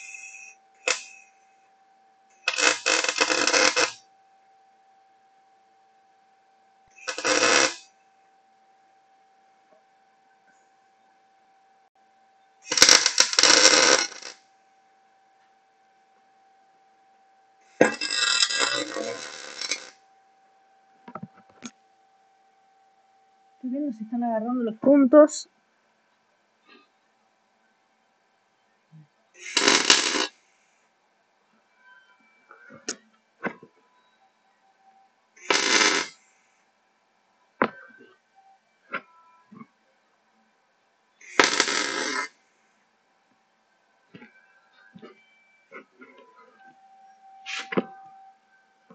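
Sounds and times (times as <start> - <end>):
welder arc crackling: 0.0 - 1.3, 2.4 - 4.0, 7.0 - 7.9, 12.7 - 14.4, 17.8 - 20.0, 29.4 - 30.3, 35.4 - 36.2, 41.2 - 42.3.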